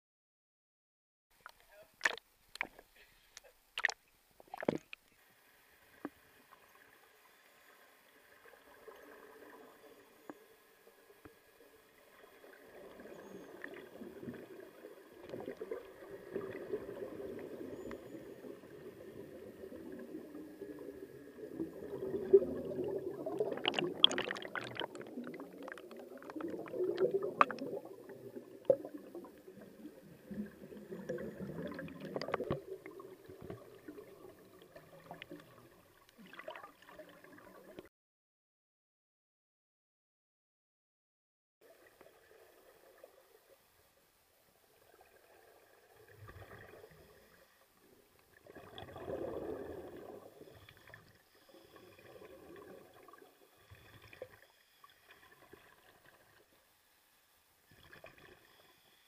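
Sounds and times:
muffled underwater bubbles gurgling: 12.0s - 37.9s, 48.4s - 54.4s.

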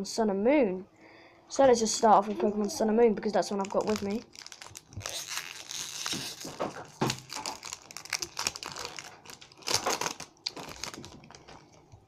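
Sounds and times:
foil pack crinkling: 3.2s - 12.0s.

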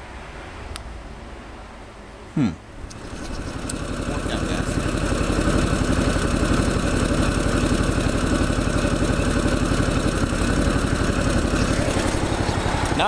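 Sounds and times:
mower engine idling: 2.8s - 13.0s.

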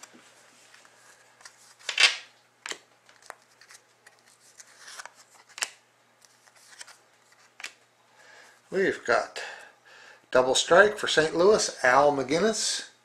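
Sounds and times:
trading cards rustling: 0.0s - 7.8s.

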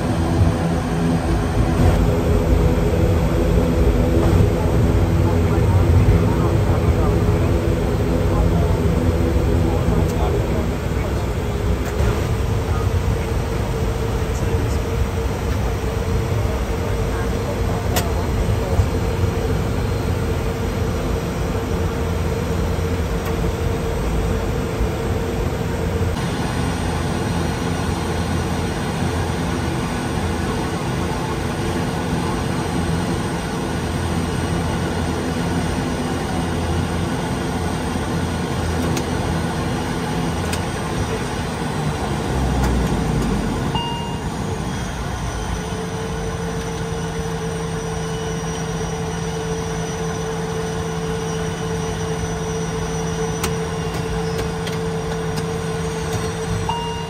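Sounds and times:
turboprop engines roaring: 0.0s - 57.0s.

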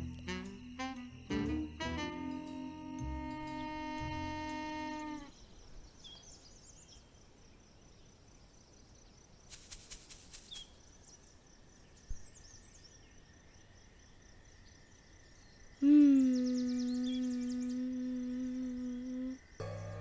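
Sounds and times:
faint bird-like chirps: 14.6s - 20.0s.

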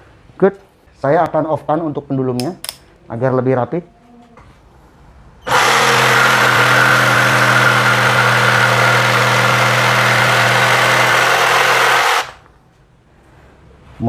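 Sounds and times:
jigsaw sawing wood: 5.4s - 12.4s.

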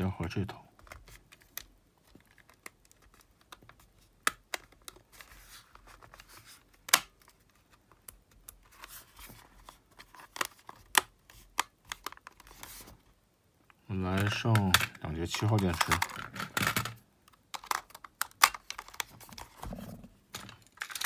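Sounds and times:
plastic case scraping and rubbing: 18.8s - 21.0s.

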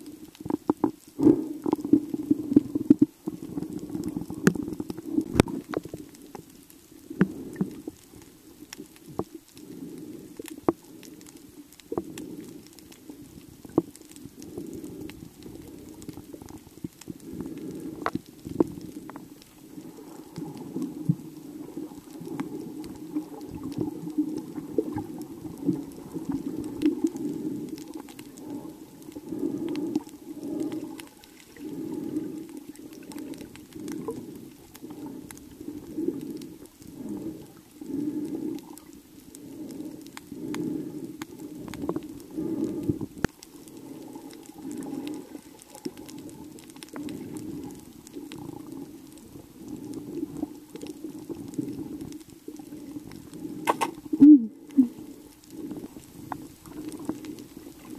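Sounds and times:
underwater rumble of moving water: 0.0s - 57.9s
sharp clicks: 53.6s - 54.0s.

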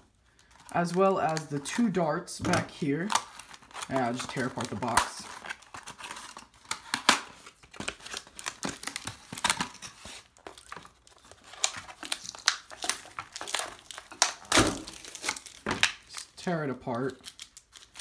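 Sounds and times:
cardboard ripping and crinkling: 2.8s - 16.3s.

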